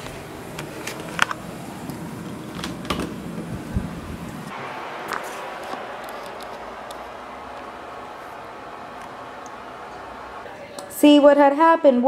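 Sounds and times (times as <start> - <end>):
door opening clicks and thumps: 2.5 - 3.2.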